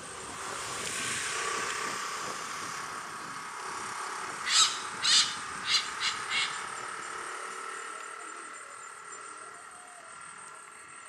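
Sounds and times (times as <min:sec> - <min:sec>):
faint background hum: 0:00.0 - 0:11.0
hornbill calling: 0:04.4 - 0:07.1.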